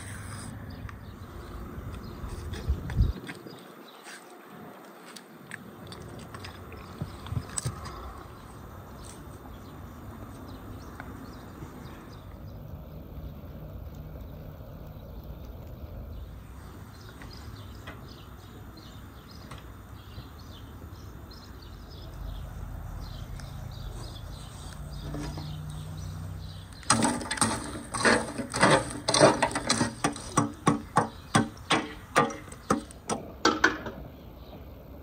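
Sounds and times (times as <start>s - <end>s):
metal poker raking embers: 0.0s - 0.6s, 26.6s - 34.0s.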